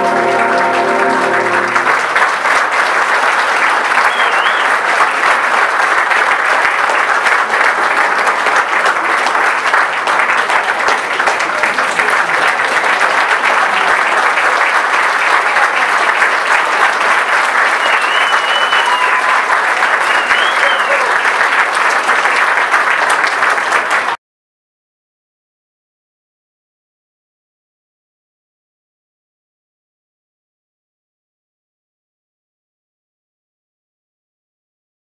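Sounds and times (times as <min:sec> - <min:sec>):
concert band chord: 0:00.0 - 0:02.1
audience applause: 0:00.0 - 0:24.2
audience whistles: 0:03.8 - 0:04.9, 0:17.5 - 0:21.4.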